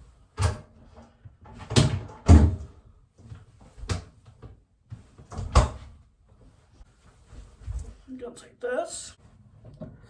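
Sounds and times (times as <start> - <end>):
cupboard door opening and shutting: 0.3 - 2.8, 5.2 - 6.0.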